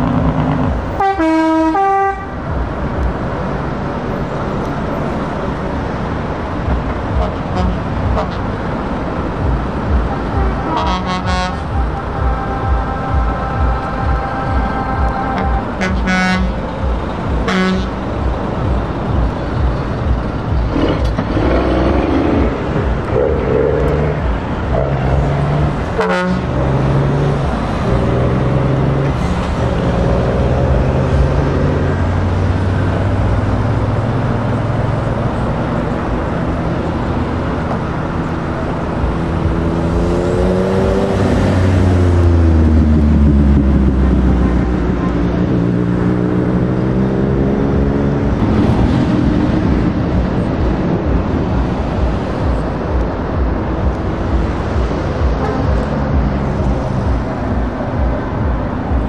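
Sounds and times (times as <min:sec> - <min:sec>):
horn toots: 0:00.0 - 0:02.5, 0:07.1 - 0:08.6, 0:09.9 - 0:18.0, 0:20.5 - 0:28.2, 0:53.9 - 0:57.2
diesel truck engine accelerating: 0:00.0 - 0:59.0.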